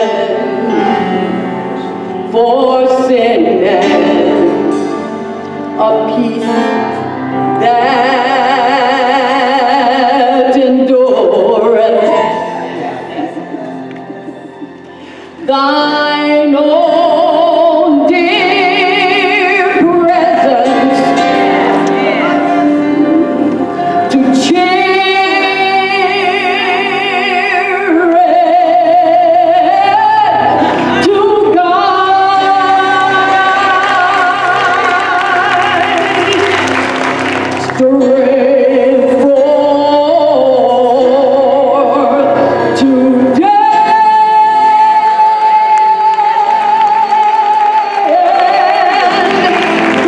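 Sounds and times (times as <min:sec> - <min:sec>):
gospel choir singing: 0:05.8 - 0:50.0.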